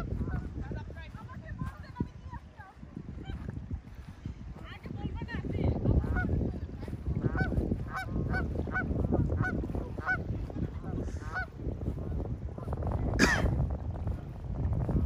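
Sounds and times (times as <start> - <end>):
geese honking: 0.0 - 0.6, 6.0 - 13.5
steady low rumble: 0.0 - 15.0.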